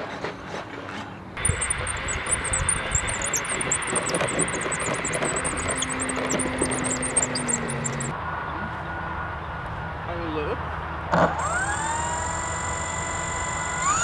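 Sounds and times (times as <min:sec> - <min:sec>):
high rapid chirping: 0:01.4 - 0:08.2
low motor hum: 0:01.4 - 0:08.2.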